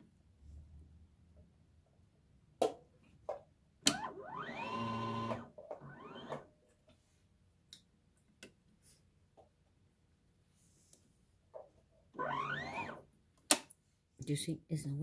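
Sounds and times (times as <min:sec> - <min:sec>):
sewing machine motor whine: 0:03.9 - 0:06.5, 0:12.2 - 0:13.0.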